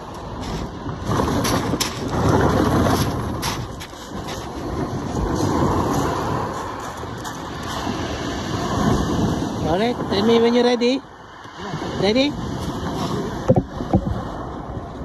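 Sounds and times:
footsteps on pebbles: 0.0s - 7.9s
surf breaking on shingle: 0.0s - 9.1s.

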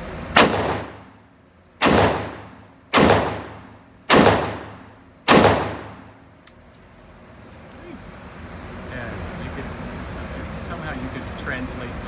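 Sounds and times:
revolver shots echoing indoors: 0.0s - 7.0s.

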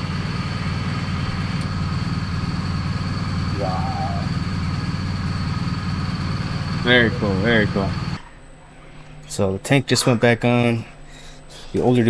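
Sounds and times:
motorcycle engine idling: 0.0s - 8.2s.

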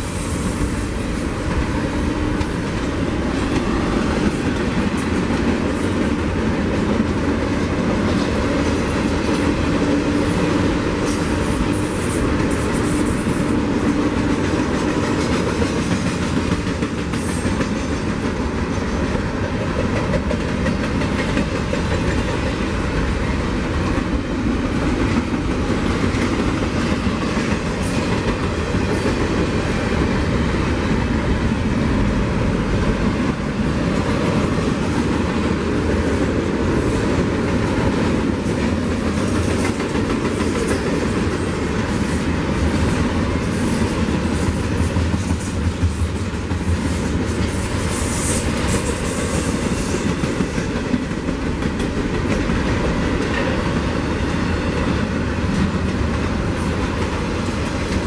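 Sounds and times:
train wheels on rails: 0.0s - 58.0s.

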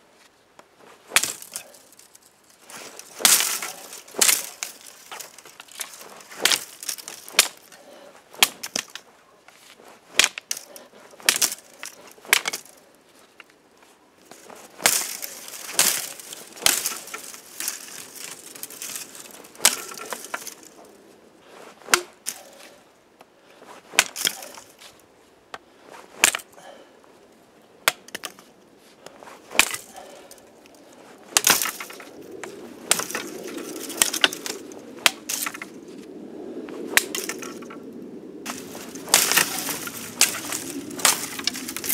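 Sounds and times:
twigs rustling: 0.0s - 41.9s
stems snapping: 0.6s - 12.8s, 14.2s - 21.0s, 23.9s - 25.6s, 27.8s - 36.1s, 36.9s - 41.9s
blade chopping stems: 1.1s - 9.1s, 10.1s - 12.8s, 14.3s - 20.9s, 21.8s - 22.7s, 23.9s - 24.8s, 29.5s - 30.4s, 31.3s - 35.8s, 36.9s - 37.8s, 38.5s - 41.9s.

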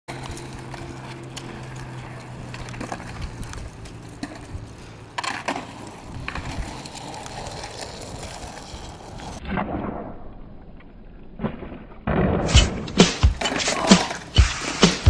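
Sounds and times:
skateboard clacking on concrete: 0.1s - 9.4s
skateboard wheels rolling on concrete: 0.1s - 15.0s.

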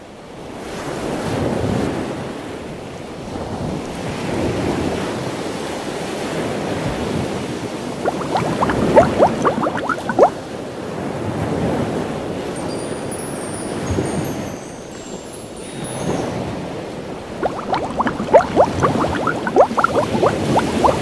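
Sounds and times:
ocean water rushing: 8.0s - 10.4s, 17.4s - 21.0s
rising bubble blips: 8.0s - 10.4s, 17.4s - 21.0s.

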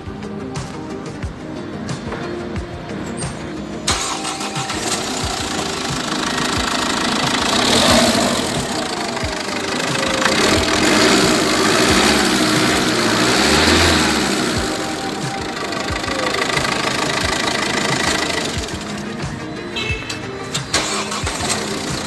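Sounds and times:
diesel engine idling: 3.9s - 19.4s.

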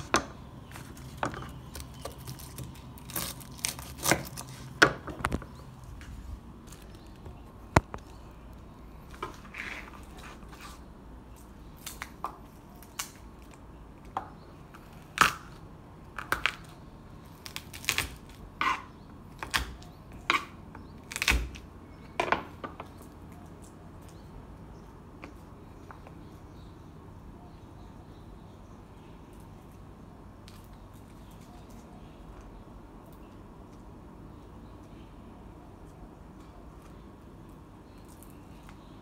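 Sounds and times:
garlic skin crackling: 0.0s - 13.8s, 14.6s - 21.8s.

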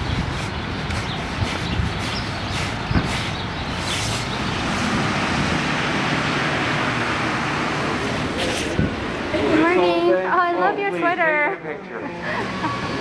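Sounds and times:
tyres hissing on wet road: 0.2s - 9.3s.

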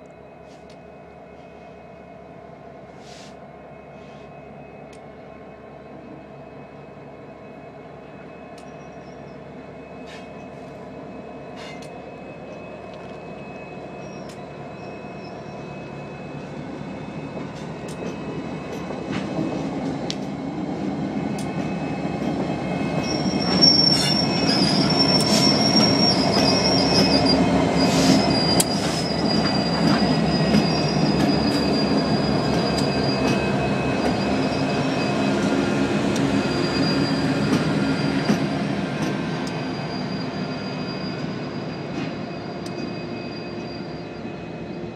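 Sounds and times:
diesel locomotive engines rumbling: 0.0s - 44.9s
high wheel squeal: 11.5s - 16.4s, 22.6s - 44.9s.

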